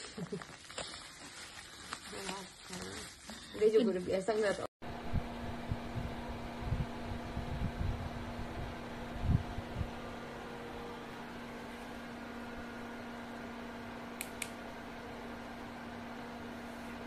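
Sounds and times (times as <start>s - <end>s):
projector cooling fan hum: 4.8s - 17.0s.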